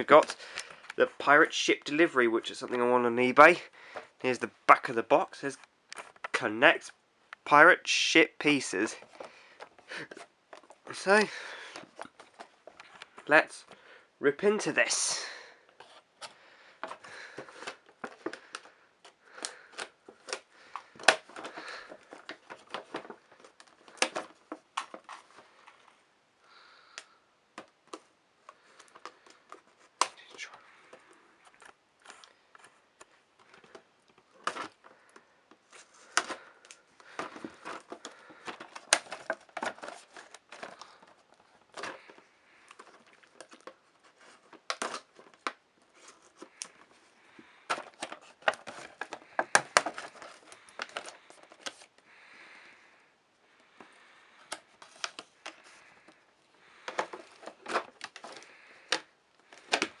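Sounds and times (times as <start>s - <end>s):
packaging crinkling: 31.4s - 52.6s.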